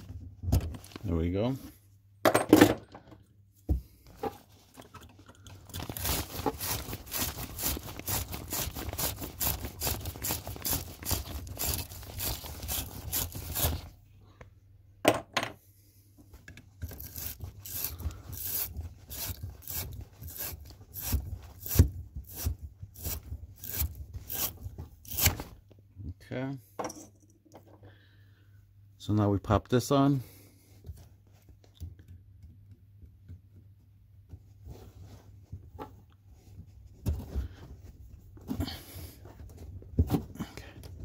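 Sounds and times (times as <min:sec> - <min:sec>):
deburring tool rasping on copper pipe: 0:16.8 - 0:25.4.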